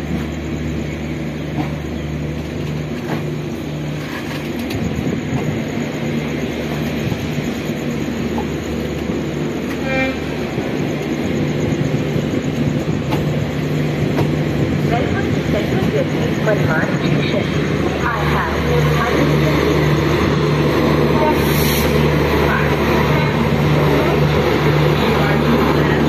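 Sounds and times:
train rumbling: 0.0s - 26.0s
train horn toot: 9.6s - 10.6s.

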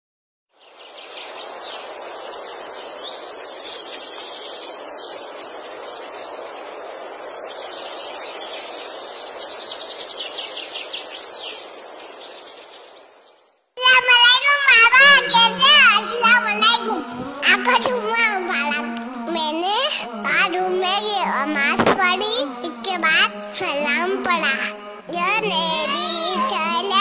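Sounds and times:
birds chirping: 0.5s - 27.0s
background hush: 13.8s - 27.0s.

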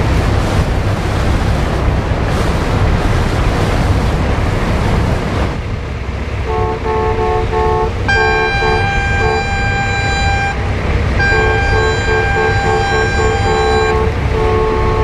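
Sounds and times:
steady low rumble: 0.0s - 15.0s
higher ship horn long blast: 6.4s - 15.0s
ship horn short blasts: 6.4s - 15.0s.

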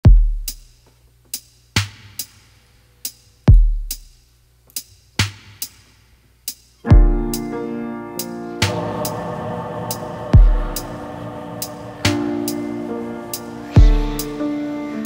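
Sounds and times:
deep booming kick drums: 0.0s - 0.6s, 3.5s - 4.0s, 6.9s - 7.5s, 8.6s - 14.4s
drum machine beat: 0.0s - 2.4s, 3.0s - 7.6s, 8.2s - 14.7s.

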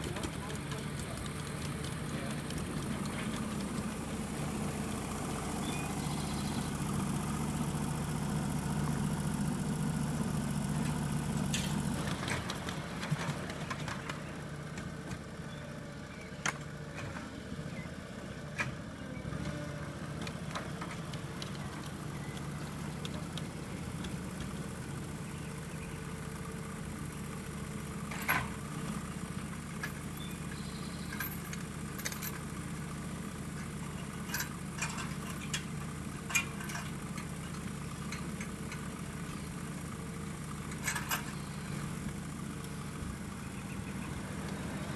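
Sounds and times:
small engine idling: 0.0s - 44.9s
metal clicks and clanks: 31.1s - 32.5s, 34.2s - 38.9s, 40.7s - 41.4s.

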